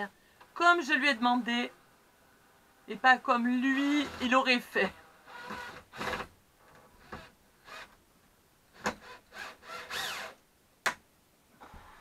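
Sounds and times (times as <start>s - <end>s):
cordless drill whirring: 5.0s - 6.3s, 8.8s - 10.4s.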